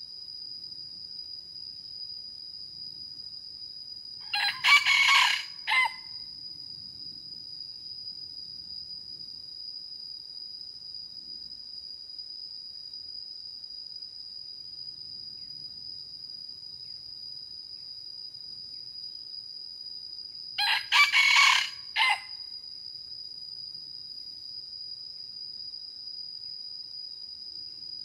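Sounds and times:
high-pitched insect drone: 0:00.0 - 0:09.9, 0:12.8 - 0:28.0
rooster crowing: 0:04.2 - 0:06.2, 0:20.6 - 0:22.4.

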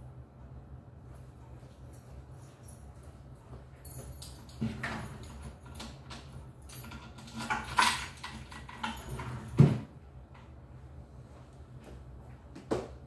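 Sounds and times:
objects clattering in a cabinet: 0:04.1 - 0:10.0.

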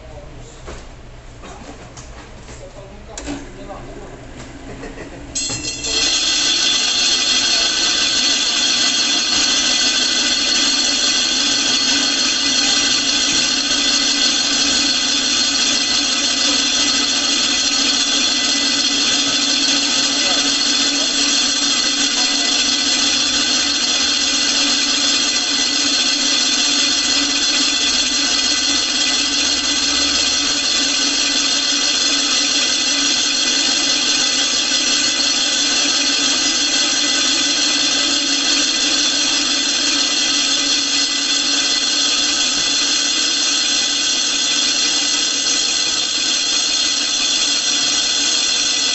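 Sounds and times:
grinding stone squealing on blade: 0:05.4 - 0:48.9.

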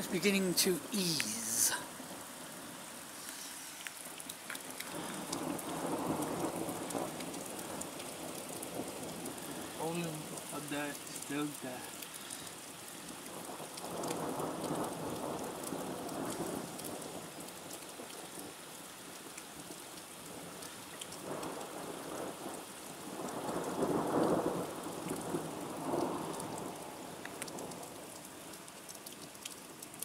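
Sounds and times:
rain pattering on wet ground: 0:00.0 - 0:30.0
thunder rumbling: 0:04.8 - 0:11.6.

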